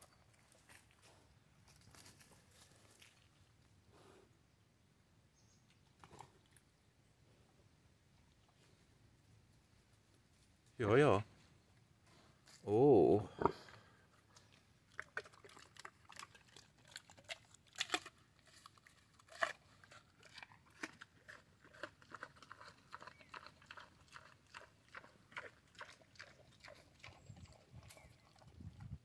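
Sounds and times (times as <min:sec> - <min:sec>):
pig chewing apple: 0:14.3 - 0:29.0.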